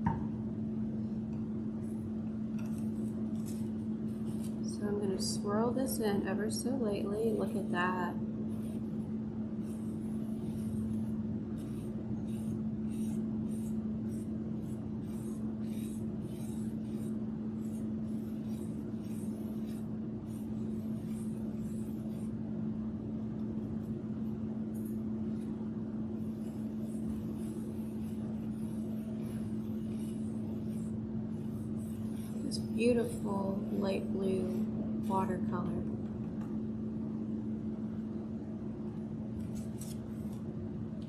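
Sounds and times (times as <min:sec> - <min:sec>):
steady low hum: 0:00.0 - 0:41.0
paintbrush scratching in paint: 0:01.8 - 0:22.4, 0:26.2 - 0:35.4, 0:39.4 - 0:40.5.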